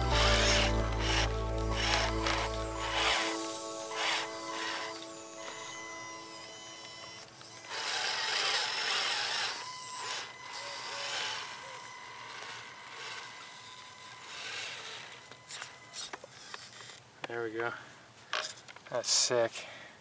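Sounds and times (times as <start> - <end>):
gritty scraping hiss: 0.0 - 9.4
small electric motor whining: 0.0 - 17.0.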